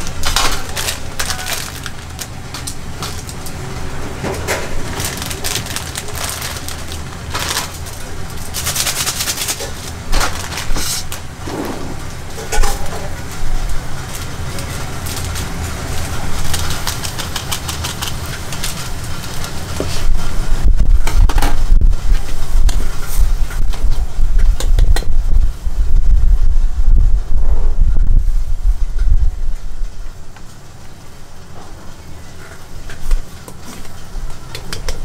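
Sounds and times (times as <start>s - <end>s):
plastic packets crinkling: 0.0s - 3.6s, 4.8s - 11.2s, 14.1s - 20.1s
gas burner rumble: 0.0s - 35.0s
pot boiling hard: 0.0s - 35.0s.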